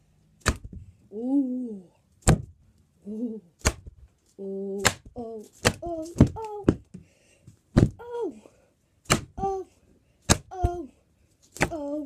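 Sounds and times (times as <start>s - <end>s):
rubber toy snapping: 0.4s - 0.8s, 3.6s - 4.0s, 4.8s - 6.8s, 9.0s - 9.4s
child humming: 1.1s - 2.0s, 3.0s - 3.5s.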